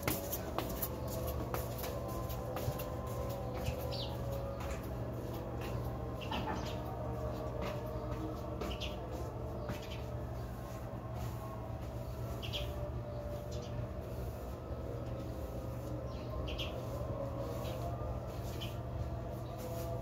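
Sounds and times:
broom sweeping tiled floor: 0:06.8 - 0:20.0.

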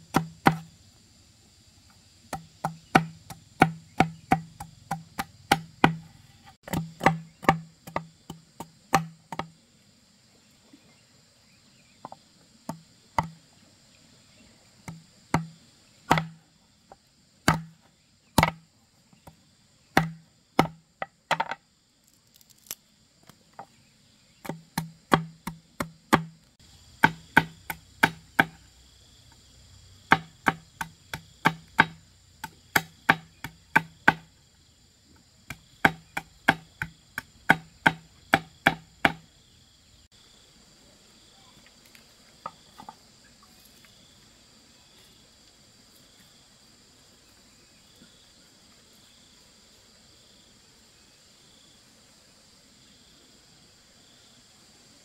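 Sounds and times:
cleaver chopping wood: 0:00.0 - 0:00.7, 0:02.3 - 0:09.5, 0:12.7 - 0:13.4, 0:14.8 - 0:16.4, 0:17.4 - 0:17.8, 0:18.4 - 0:18.6, 0:19.2 - 0:21.6, 0:24.4 - 0:26.4, 0:27.0 - 0:28.6, 0:30.1 - 0:34.3, 0:35.5 - 0:39.3.

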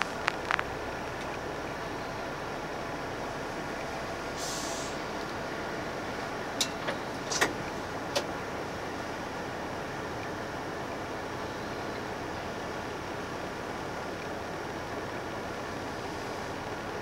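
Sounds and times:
sharp clicks: 0:00.0 - 0:01.4
bus running noise from inside: 0:00.0 - 0:17.0
high hiss: 0:04.3 - 0:05.2.

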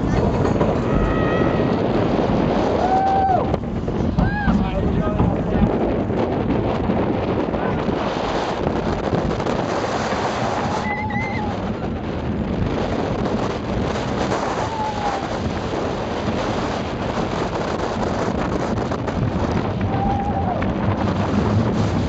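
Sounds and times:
roller coaster rumbling on track: 0:00.0 - 0:22.0
wind rushing over microphone: 0:00.0 - 0:22.0
riders crying out: 0:10.6 - 0:11.7.

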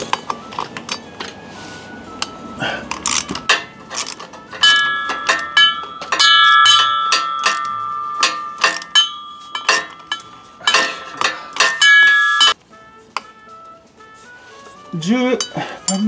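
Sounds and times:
ratchet clanking against metal: 0:02.9 - 0:12.6, 0:15.4 - 0:16.0.

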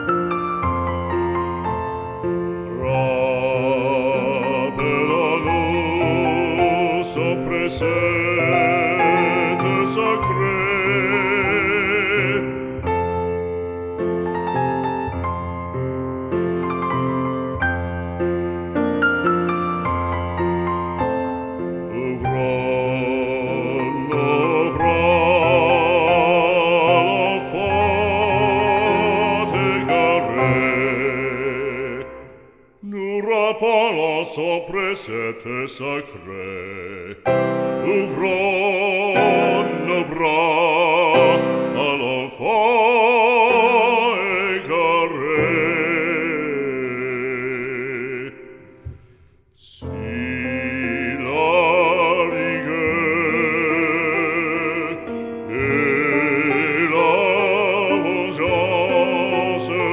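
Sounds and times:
classical accompaniment: 0:00.0 - 0:59.9
operatic singing with vibrato: 0:02.6 - 0:13.3, 0:21.5 - 0:59.9.

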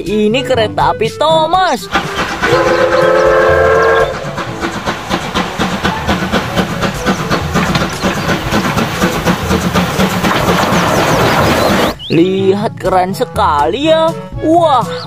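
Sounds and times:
steam locomotive whistle: 0:01.8 - 0:08.2
exhaust chuffs: 0:01.8 - 0:12.1
rail clatter: 0:01.8 - 0:12.1.

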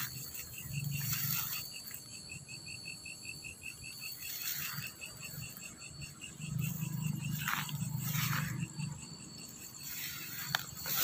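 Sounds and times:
footsteps rustling through grass: 0:00.0 - 0:02.2, 0:04.1 - 0:05.6, 0:06.6 - 0:11.0
high-pitched insect drone: 0:00.0 - 0:11.0
insect chirping: 0:00.0 - 0:11.0.

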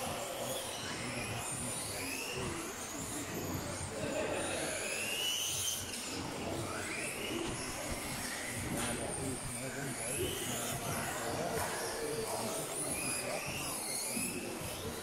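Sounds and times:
background noise: 0:00.0 - 0:15.0
rc buggy motors whining: 0:00.0 - 0:15.0.

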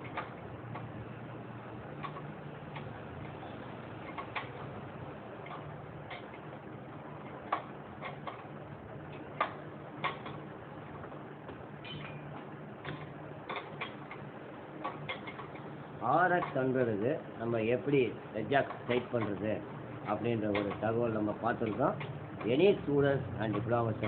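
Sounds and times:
faint steady hum: 0:00.0 - 0:24.0
hand tool clicking on metal nut: 0:20.0 - 0:22.6.

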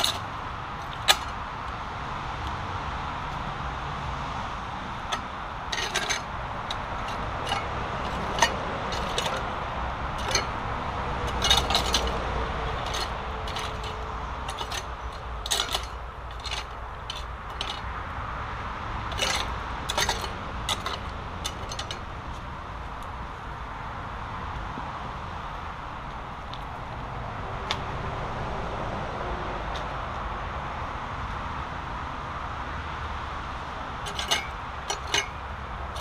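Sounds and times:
tool scraping through stones: 0:00.0 - 0:01.4, 0:05.1 - 0:09.5, 0:10.2 - 0:10.6, 0:11.3 - 0:12.2, 0:12.8 - 0:17.9, 0:19.1 - 0:22.0, 0:34.1 - 0:35.4.

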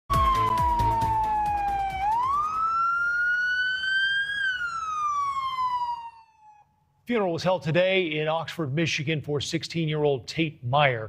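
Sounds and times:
police siren wailing: 0:00.1 - 0:06.8.

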